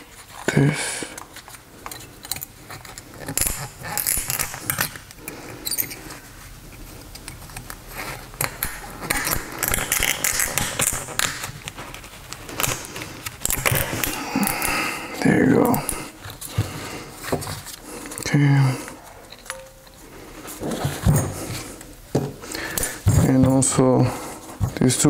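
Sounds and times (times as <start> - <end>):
metal clips clicking and scraping: 1.2 - 6.1, 6.7 - 14.8.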